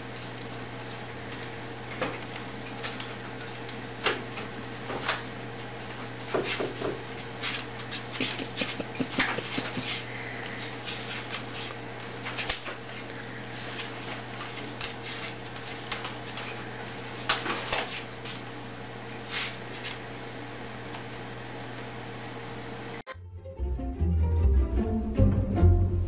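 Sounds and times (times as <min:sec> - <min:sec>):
steady low hum: 0:07.0 - 0:26.0.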